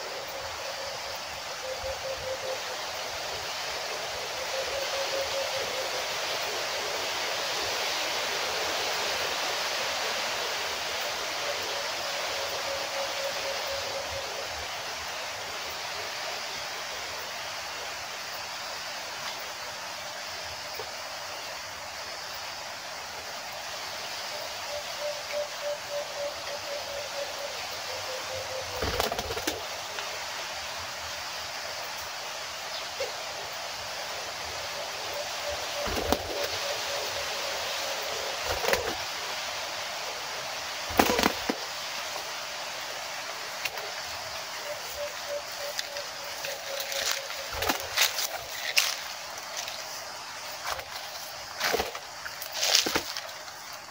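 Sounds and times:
forest background hiss: 0.0 - 53.9
dove cooing: 24.7 - 29.8, 34.7 - 39.1.

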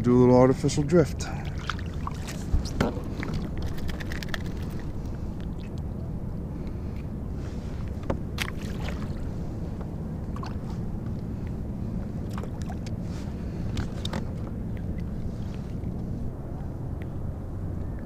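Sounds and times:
steady low rumble: 0.0 - 18.0
water splashing against kayak: 1.2 - 5.8, 8.4 - 9.4, 12.2 - 15.9.

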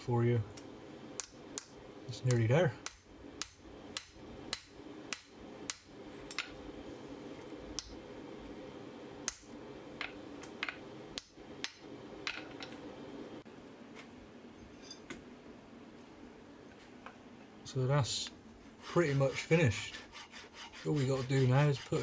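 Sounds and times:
hammer tapping on hot steel: 1.2 - 6.5.

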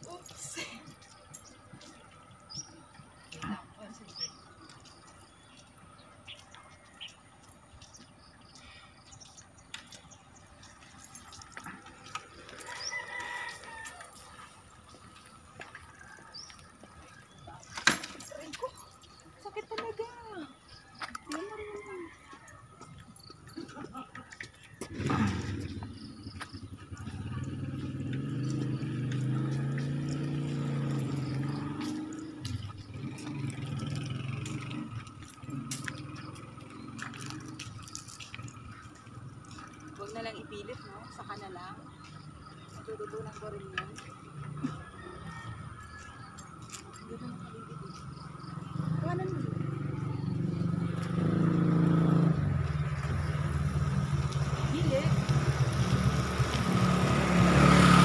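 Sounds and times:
rooster crowing: 12.5 - 14.5, 44.6 - 46.9
vehicle engine humming: 23.0 - 58.0.

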